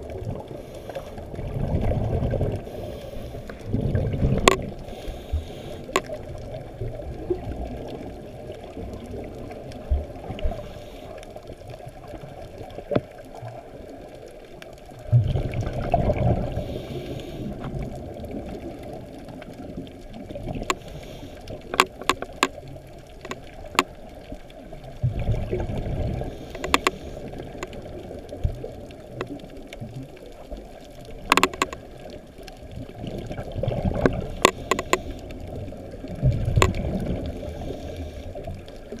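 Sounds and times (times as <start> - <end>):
sharp clicks: 21.6 - 22.6, 26.5 - 27.8, 31.2 - 31.8, 34.0 - 35.2.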